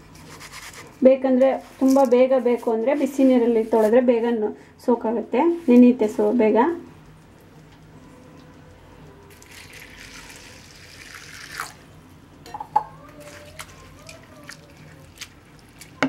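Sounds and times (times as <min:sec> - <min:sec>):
water poured into a bowl: 0:09.3 - 0:11.8
hands swishing wet flakes: 0:13.2 - 0:16.0.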